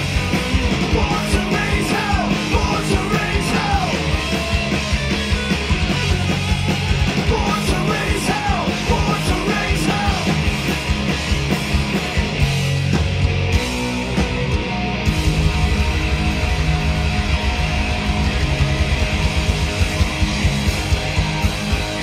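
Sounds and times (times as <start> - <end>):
bass guitar: 0.0 - 22.0
distorted electric guitars: 0.0 - 22.0
drums: 0.0 - 22.0
person singing: 0.9 - 4.1.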